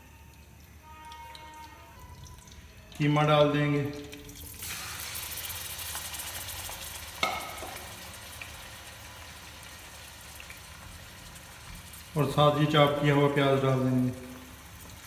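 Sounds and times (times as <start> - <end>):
meat sizzling in hot oil: 4.3 - 15.0.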